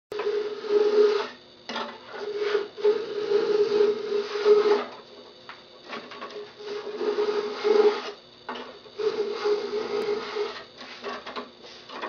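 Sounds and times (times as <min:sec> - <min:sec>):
steady hum: 0:00.1 - 0:12.0
hand plane scraping wood: 0:00.2 - 0:01.4, 0:02.1 - 0:04.9, 0:05.9 - 0:08.2, 0:09.0 - 0:12.0.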